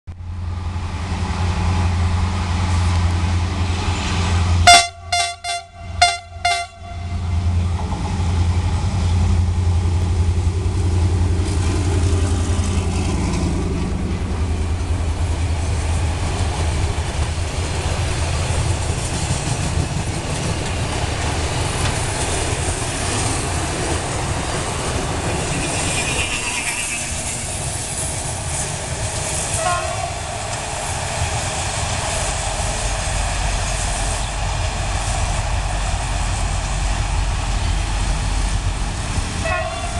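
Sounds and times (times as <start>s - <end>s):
locomotive engine drone: 0.1s - 39.9s
train horn blasts: 4.6s - 7.6s, 29.5s - 30.3s, 39.4s - 39.9s.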